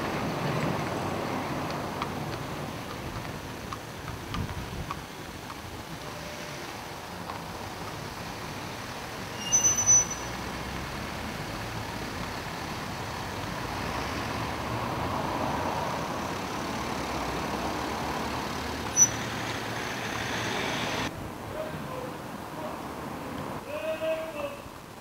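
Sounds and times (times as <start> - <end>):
passing cars: 0.0 - 23.7
short sharp high squeak: 9.3 - 10.4, 18.9 - 19.5.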